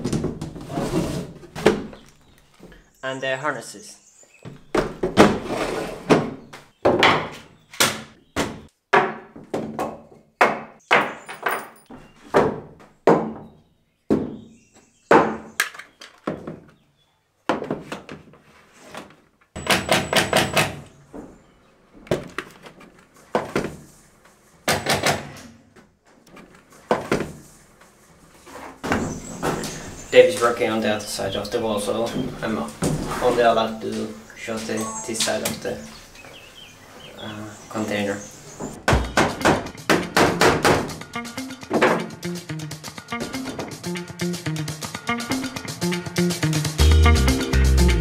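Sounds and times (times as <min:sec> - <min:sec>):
sharp knocks: 0:38.7 - 0:41.0
helmets knocking on wooden wall: 0:38.8 - 0:41.0.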